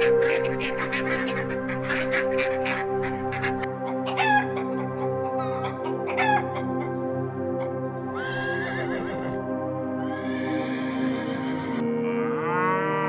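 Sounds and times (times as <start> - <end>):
chickens clucking: 0.0 - 9.4
background music: 0.0 - 13.0
horse whinny: 8.2 - 9.4.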